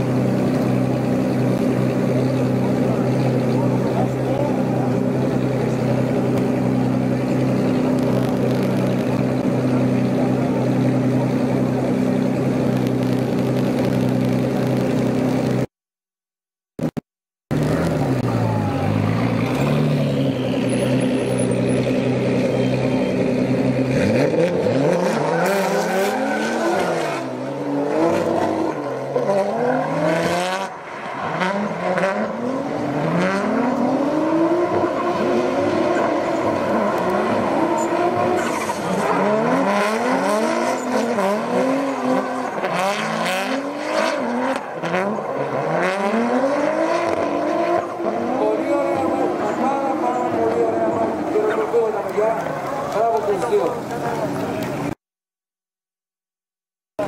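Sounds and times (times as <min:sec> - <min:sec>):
car engines revving: 0:00.0 - 0:15.7, 0:16.8 - 0:55.0.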